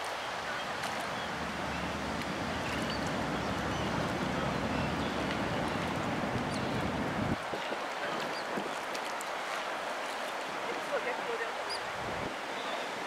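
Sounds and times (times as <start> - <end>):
wind buffeting microphone: 1.1 - 8.9, 11.7 - 12.4.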